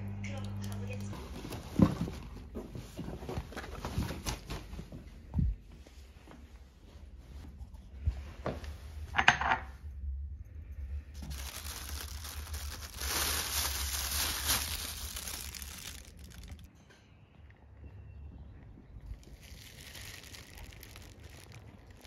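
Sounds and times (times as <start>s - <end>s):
plastic trash bag rustling: 1.0s - 5.0s, 11.2s - 16.7s, 19.1s - 22.0s.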